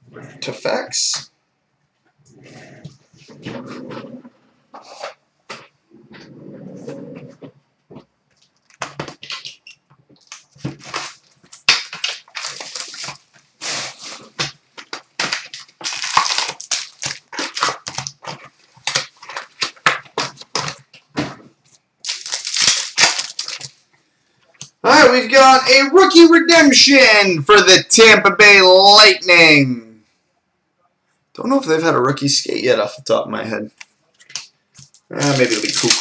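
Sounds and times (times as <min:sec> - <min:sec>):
wrappers and cards crinkling: 0:08.3 - 0:21.1, 0:21.7 - 0:23.9, 0:33.8 - 0:36.0.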